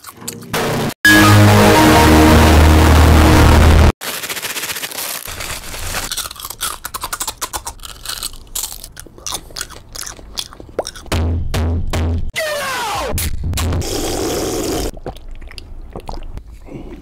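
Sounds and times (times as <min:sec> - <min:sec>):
music: 0:00.6 - 0:03.9, 0:11.1 - 0:13.8
crunching crispy snack: 0:04.0 - 0:11.0.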